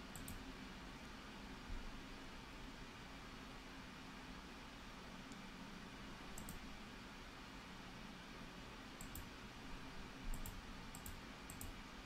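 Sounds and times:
computer mouse clicks: 0.0 - 0.4, 6.3 - 6.6, 9.0 - 9.3, 10.3 - 11.8
faint room hiss: 0.0 - 12.0.

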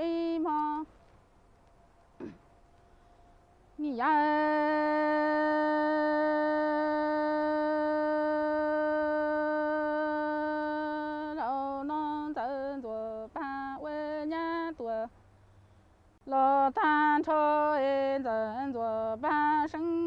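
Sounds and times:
woman singing unaccompanied: 0.0 - 0.9, 3.8 - 15.2, 16.2 - 20.0.

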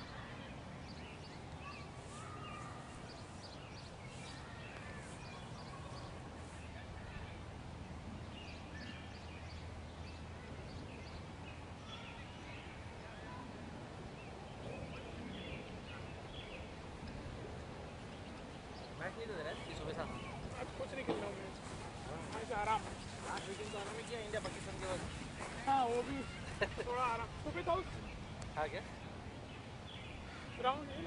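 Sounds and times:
faint distant high calls: 1.6 - 7.4.

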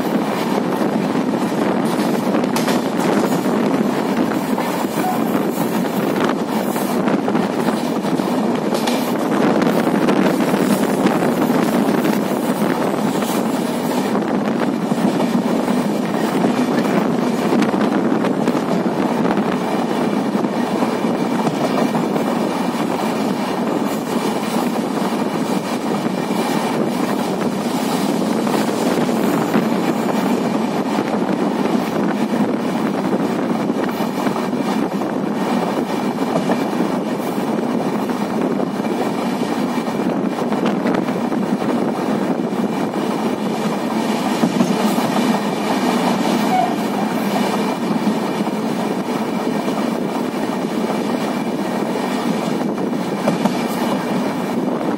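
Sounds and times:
train wheels rumbling on rails: 0.0 - 54.9.

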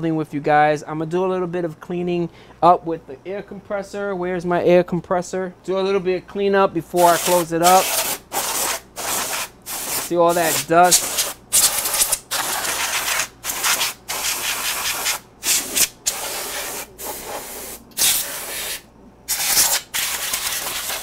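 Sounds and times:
compressed air hissing bursts: 7.0 - 21.0.

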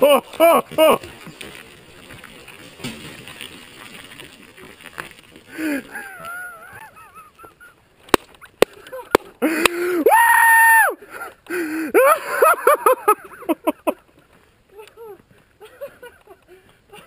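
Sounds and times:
person yelling: 10.0 - 10.9.

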